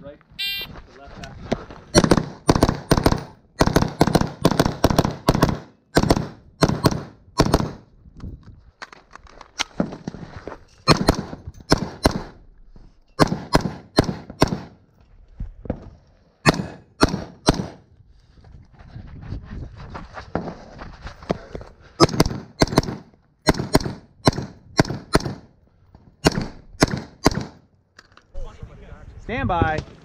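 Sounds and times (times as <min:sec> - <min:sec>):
rifle shots: 0:02.0 - 0:07.9, 0:10.9 - 0:12.4, 0:13.2 - 0:14.8, 0:16.4 - 0:17.8, 0:22.0 - 0:25.5, 0:26.2 - 0:27.6.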